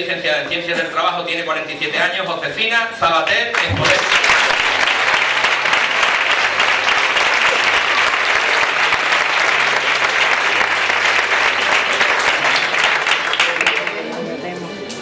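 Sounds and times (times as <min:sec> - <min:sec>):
audience applauding: 0:03.5 - 0:14.1.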